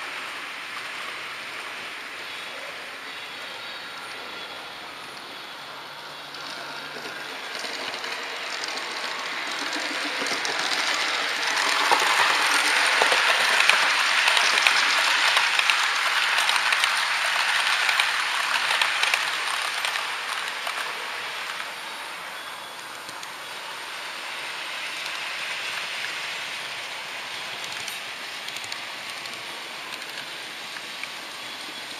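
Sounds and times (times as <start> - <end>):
model train wheels clattering: 6.2 - 21.8, 24.3 - 31.9.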